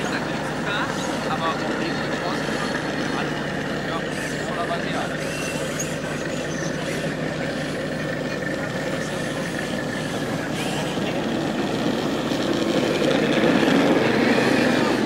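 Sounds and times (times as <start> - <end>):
faint background voices: 0.0 - 12.9
motor running with whine: 0.0 - 15.0.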